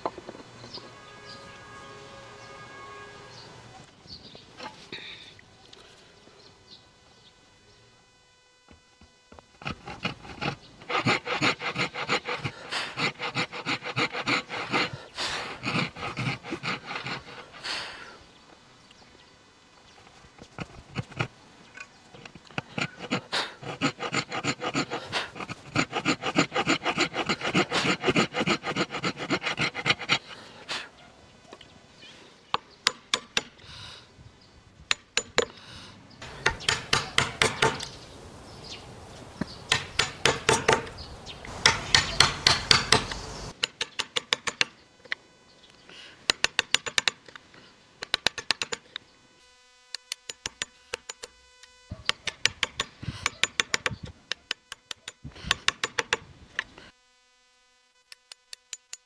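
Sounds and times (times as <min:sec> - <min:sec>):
hand saw rasping through wood: 0:09.3 - 0:18.0, 0:20.4 - 0:21.3, 0:22.1 - 0:30.8, 0:36.2 - 0:37.9, 0:39.7 - 0:41.0, 0:41.6 - 0:43.6, 0:52.0 - 0:56.2.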